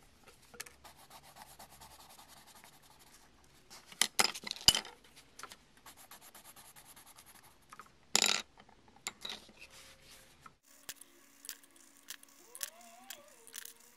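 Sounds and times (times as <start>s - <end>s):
pencil scratching on paper: 0.8s - 3.2s, 5.9s - 7.6s, 10.6s - 13.9s.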